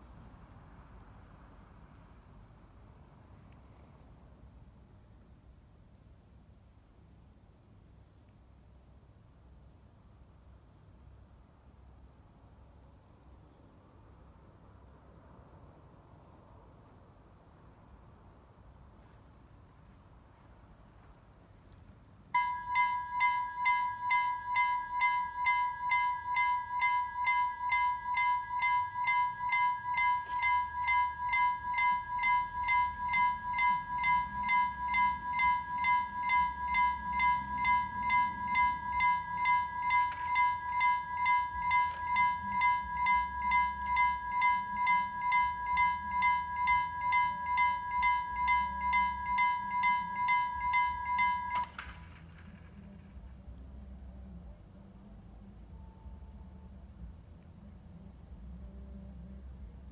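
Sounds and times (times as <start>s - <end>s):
level crossing bell ringing: 22.4s - 52.6s.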